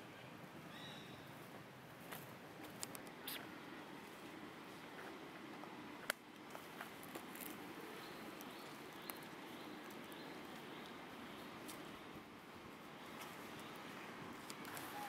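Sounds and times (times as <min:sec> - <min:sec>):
faint outdoor hiss: 0:00.0 - 0:15.0
twig cracking: 0:06.0 - 0:07.6
soft ticks: 0:08.4 - 0:11.0.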